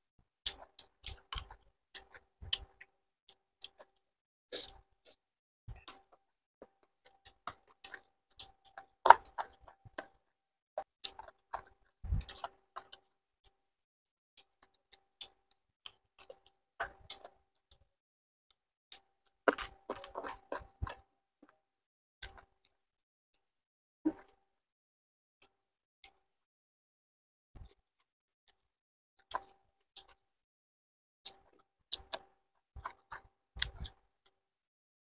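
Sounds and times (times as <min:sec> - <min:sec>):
chewing and crunching: 0:00.4 - 0:04.0, 0:04.6 - 0:13.6, 0:14.4 - 0:17.9, 0:18.9 - 0:21.6, 0:22.2 - 0:22.8, 0:29.2 - 0:30.2, 0:31.3 - 0:34.4.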